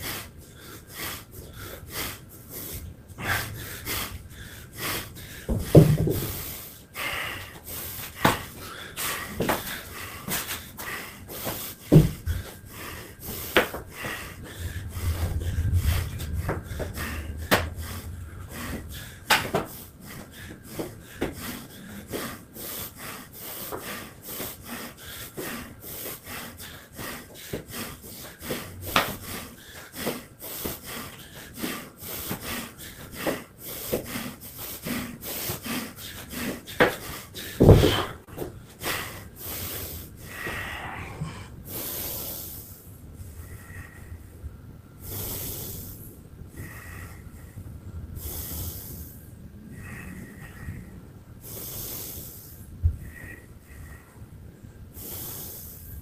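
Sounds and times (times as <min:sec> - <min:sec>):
person breathing hard: 0:00.0 - 0:56.0
thuds: 0:05.4 - 0:06.4, 0:11.9 - 0:12.4, 0:37.6 - 0:38.5.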